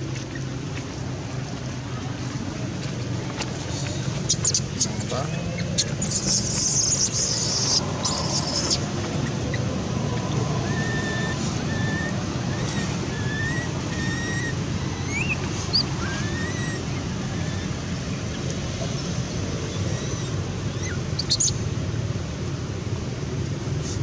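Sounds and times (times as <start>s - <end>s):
small birds chirping: 2.9s - 21.6s.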